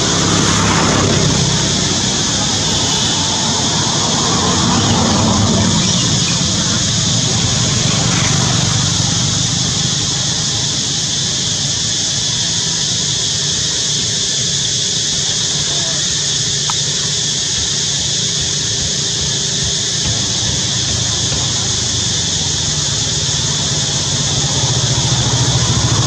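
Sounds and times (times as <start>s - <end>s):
even rumble: 0.0s - 11.9s
hiss: 0.0s - 26.0s.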